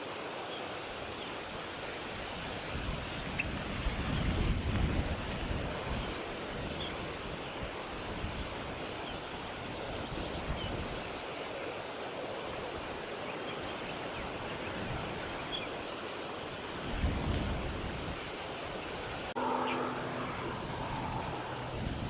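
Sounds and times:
wind: 0.0 - 22.0
wind gust buffeting microphone: 2.1 - 8.9, 16.8 - 22.0.

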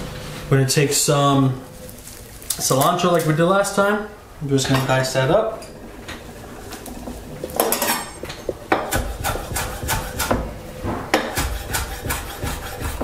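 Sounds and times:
knife chopping on wooden board: 8.7 - 13.0.

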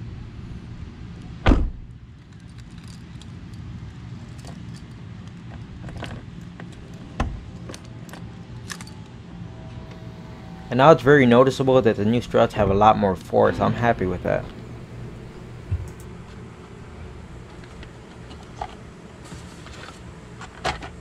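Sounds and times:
steady low rumble: 0.0 - 21.0
car hatch shutting with thud: 1.4 - 1.9
keys jangling: 2.2 - 9.1.

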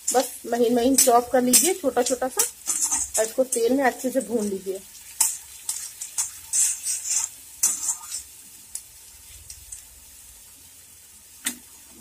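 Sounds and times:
spatula scraping pan: 0.0 - 3.8, 4.9 - 8.4
food sizzling in oil: 0.0 - 12.0.

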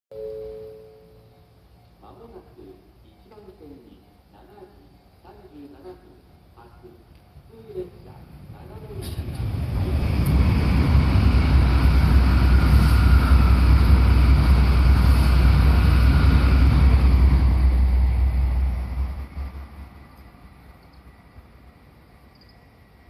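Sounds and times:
passing vehicle rumble: 9.1 - 20.1.

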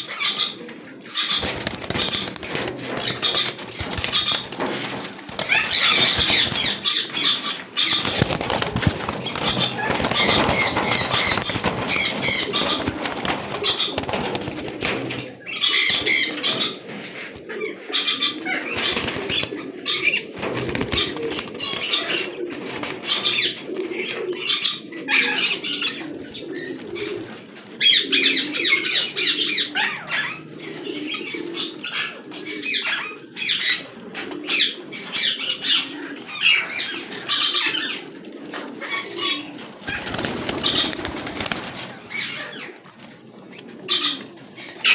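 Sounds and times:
pigeons cooing: 0.0 - 44.9
pigeons flapping wings: 1.2 - 16.9, 18.7 - 24.3, 39.5 - 43.2.

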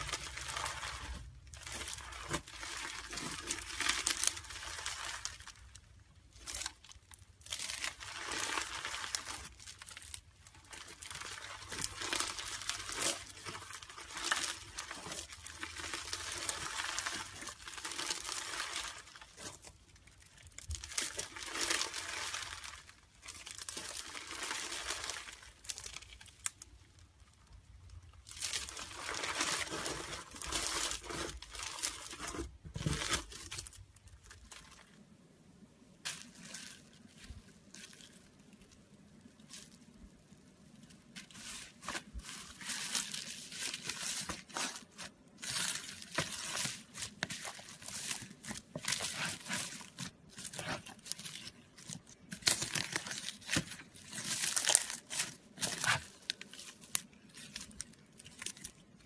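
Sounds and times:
slime squeezed and crackling: 0.0 - 26.8, 36.0 - 59.0.

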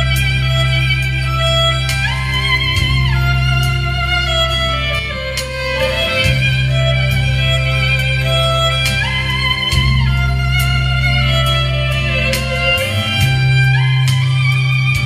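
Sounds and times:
low bass accompaniment: 0.0 - 15.0
solo violin melody: 0.0 - 15.0.

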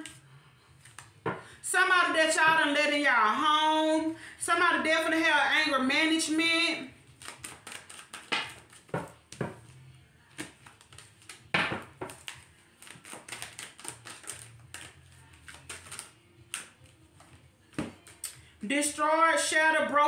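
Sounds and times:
cards being shuffled: 0.8 - 1.2, 7.0 - 18.4.

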